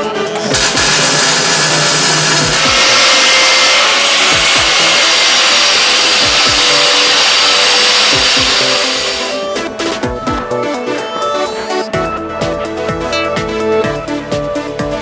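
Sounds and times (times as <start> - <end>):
electronic music with kick drum: 0.0 - 15.0
angle grinder cutting steel: 0.2 - 9.7.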